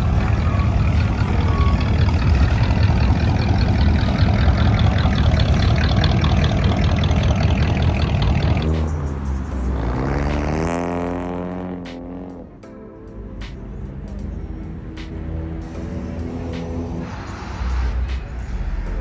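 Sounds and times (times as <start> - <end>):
vehicle engine running: 0.0 - 12.6.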